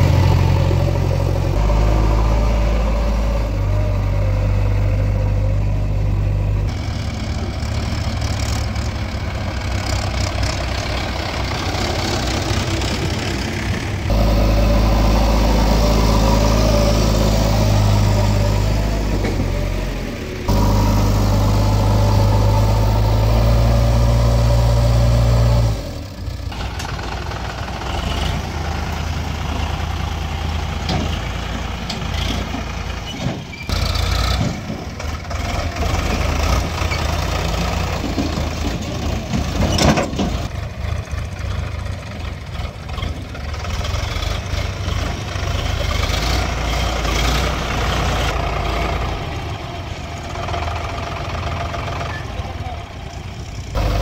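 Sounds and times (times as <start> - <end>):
diesel engines running: 0.0 - 54.0.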